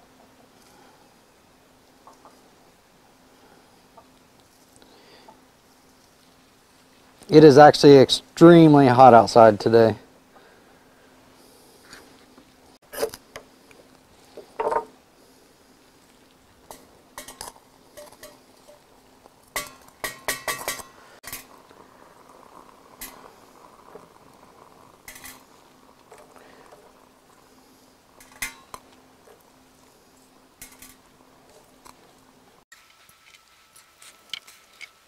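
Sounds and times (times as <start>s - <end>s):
sticks clinking in metal stove: 16.7s - 18.9s, 19.5s - 21.6s, 28.2s - 29.0s, 30.6s - 32.0s.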